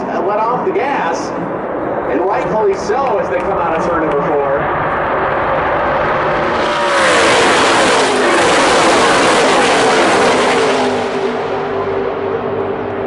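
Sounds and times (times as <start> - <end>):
race trucks passing by: 4.2 - 13.0.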